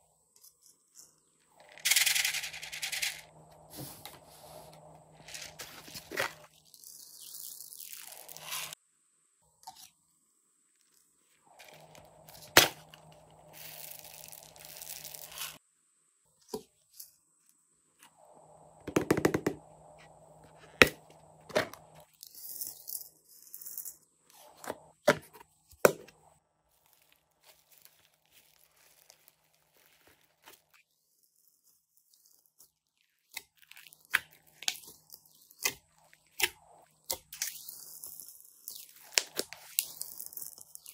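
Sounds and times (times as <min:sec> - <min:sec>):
rustling: 0:21.8 - 0:32.7
slime crackling: 0:26.7 - 0:30.7.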